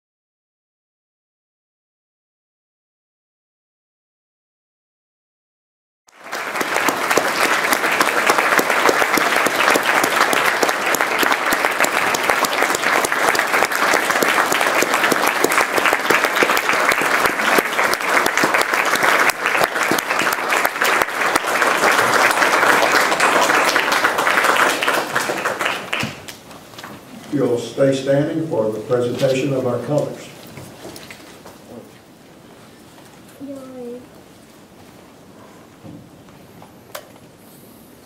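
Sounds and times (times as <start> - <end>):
audience applauding: 6.1 - 27.1.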